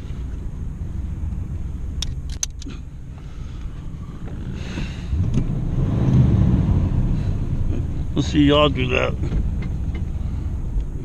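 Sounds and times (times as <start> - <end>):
car engine cranking and running: 0.0 - 11.0
car keys jangling: 2.0 - 2.8.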